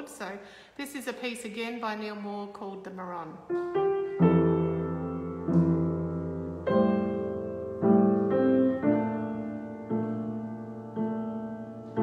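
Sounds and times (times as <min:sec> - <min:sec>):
keyboard playing slow jazz chords: 0:03.8 - 0:12.0.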